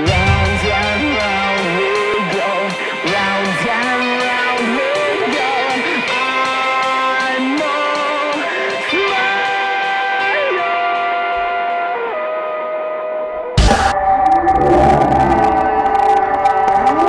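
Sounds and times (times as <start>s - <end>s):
electric guitar bending notes: 0.0s - 7.1s, 13.4s - 17.0s
high ticking beat: 0.0s - 7.8s, 13.6s - 14.0s.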